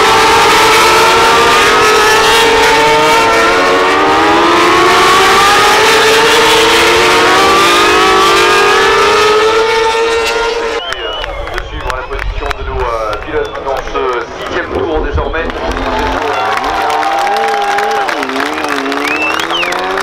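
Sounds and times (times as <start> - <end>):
racing motorcycles accelerating past: 17.6 - 20.0.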